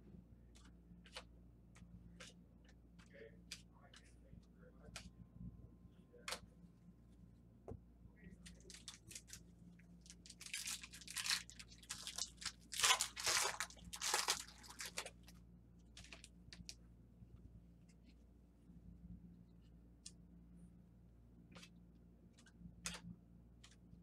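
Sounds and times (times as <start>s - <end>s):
foil wrappers crinkling and tearing: 8.6s - 9.4s, 10.0s - 15.3s.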